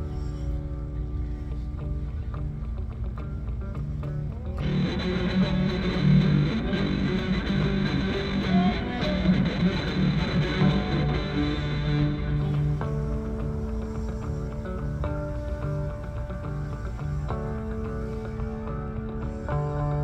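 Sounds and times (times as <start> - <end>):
rock band with electric guitar: 0.0 - 20.0.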